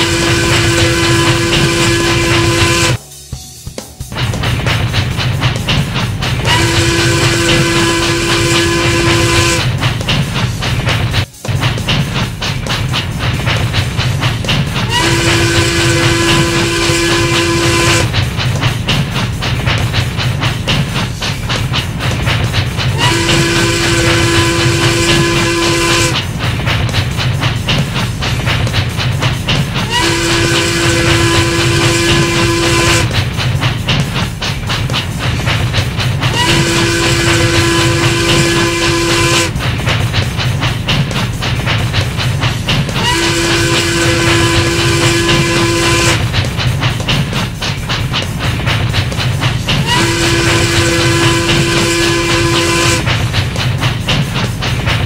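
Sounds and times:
steam whistle: 0:00.0 - 0:03.0, 0:06.5 - 0:09.7, 0:14.9 - 0:18.1, 0:23.0 - 0:26.2, 0:29.9 - 0:33.2, 0:36.3 - 0:39.6, 0:43.0 - 0:46.2, 0:49.8 - 0:53.1
steam hissing: 0:00.0 - 0:03.3, 0:04.2 - 0:55.0
steam locomotive chugging: 0:00.0 - 0:55.0.

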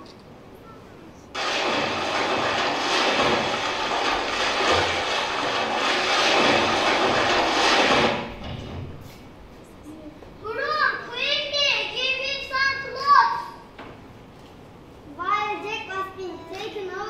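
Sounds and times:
loud even rushing noise: 0:01.4 - 0:09.1.

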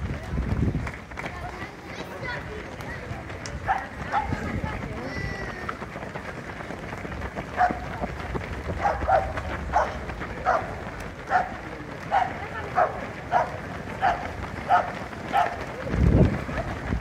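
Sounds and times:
dog barking: 0:03.7 - 0:04.4, 0:07.6 - 0:07.8, 0:08.8 - 0:10.7, 0:11.3 - 0:15.6.

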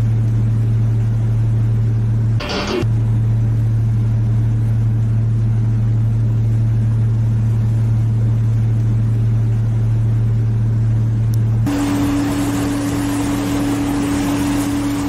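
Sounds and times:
ship engines droning: 0:02.0 - 0:05.7, 0:11.1 - 0:15.0.

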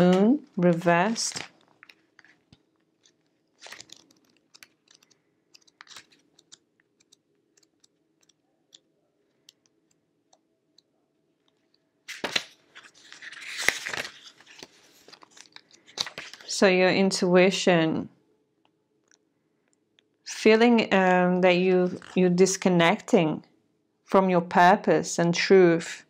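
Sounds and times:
cards clicking on tabletop: 0:00.1 - 0:08.8, 0:12.1 - 0:12.5
paper rustling: 0:00.7 - 0:06.6, 0:12.1 - 0:16.5.

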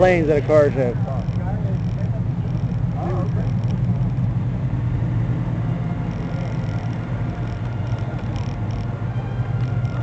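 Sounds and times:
scooter engine droning: 0:00.0 - 0:10.0.

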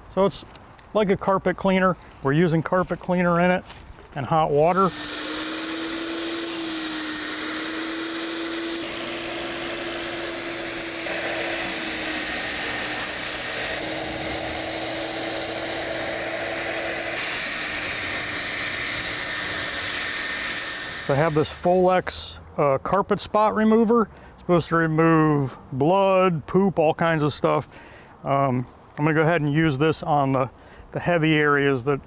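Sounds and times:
carpet cleaner vacuum whining: 0:04.7 - 0:21.8.

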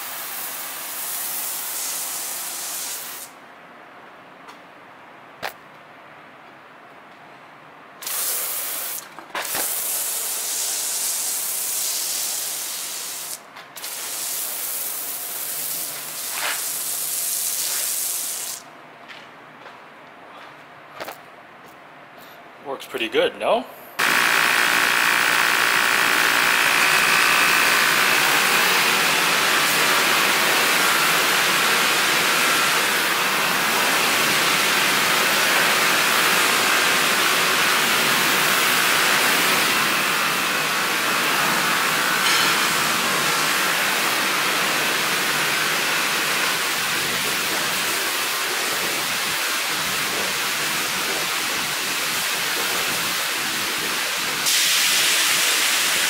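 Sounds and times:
sprayer nozzle hissing: 0:08.0 - 0:09.0
electric pump whine: 0:24.0 - 0:56.0.

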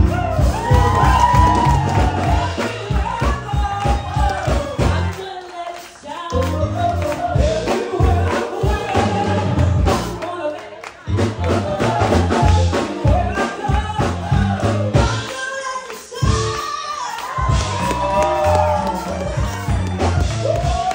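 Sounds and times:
heavy bass line: 0:00.0 - 0:05.2, 0:06.4 - 0:10.2, 0:11.1 - 0:15.3, 0:17.5 - 0:20.9
steady drum beat: 0:00.0 - 0:05.4, 0:06.4 - 0:10.4, 0:11.1 - 0:16.8, 0:17.4 - 0:20.9
woman singing into microphone: 0:02.2 - 0:17.6.

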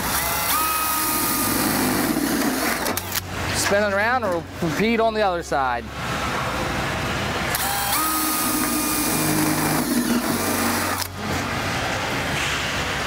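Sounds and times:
cordless drill motor whine: 0:00.0 - 0:02.8, 0:07.5 - 0:11.1
drill bit grinding through metal: 0:07.6 - 0:11.1.

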